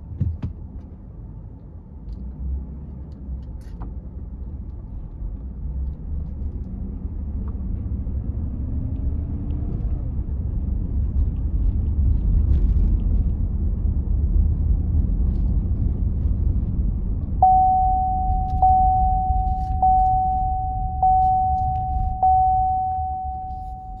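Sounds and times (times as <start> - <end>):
vehicle driving slowly: 1.0 - 24.0
dashboard warning chime: 17.4 - 24.0.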